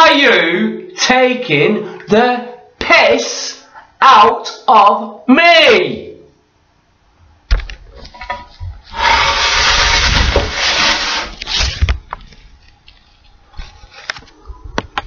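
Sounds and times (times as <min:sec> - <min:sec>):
rubbing against microphone: 0:08.4 - 0:14.8.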